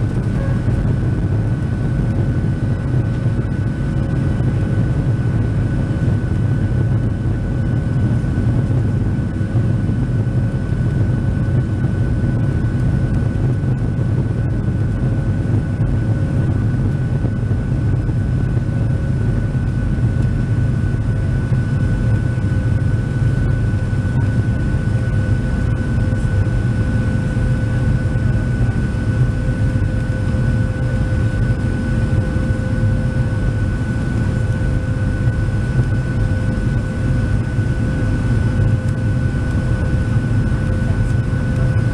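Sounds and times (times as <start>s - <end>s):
thin high whine: 0.0s - 1.3s
jet engine cabin roar: 0.0s - 41.9s.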